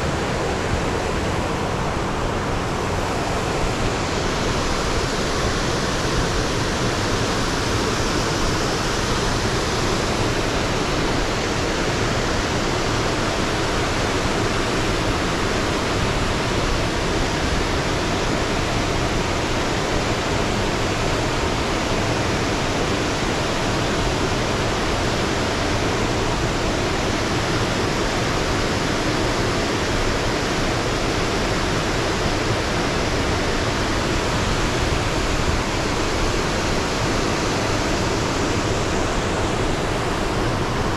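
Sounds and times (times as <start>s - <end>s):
waterfall rushing: 0.0s - 40.9s.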